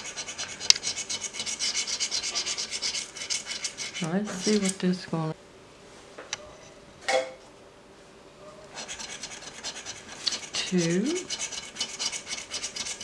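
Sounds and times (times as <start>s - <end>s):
coin scratching lottery ticket: 0.0s - 4.8s, 8.7s - 13.0s.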